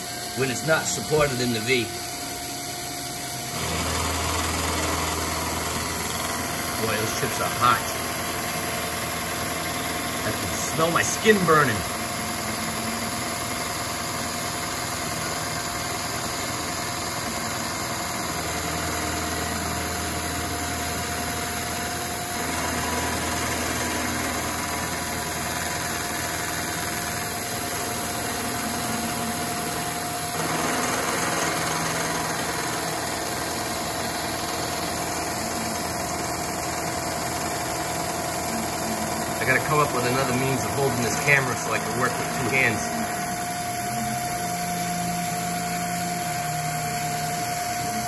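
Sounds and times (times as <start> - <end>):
face mill cutting steel: 0.0 - 48.0.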